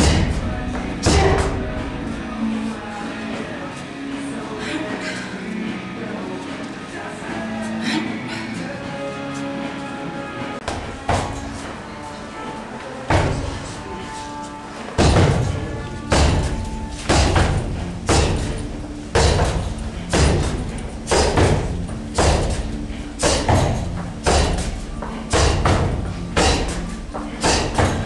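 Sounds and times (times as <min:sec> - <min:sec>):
heavy ringing thuds: 0:15.0 - 0:28.0.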